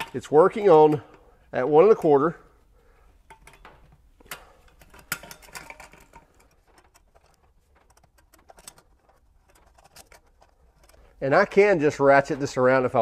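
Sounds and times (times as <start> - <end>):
oil filter wrench clicking and rattling: 3.2 - 11.2.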